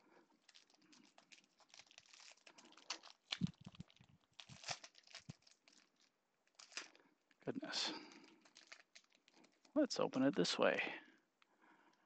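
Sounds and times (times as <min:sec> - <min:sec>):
foil wrapper crinkling and tearing: 0:00.3 - 0:07.0, 0:07.9 - 0:10.2.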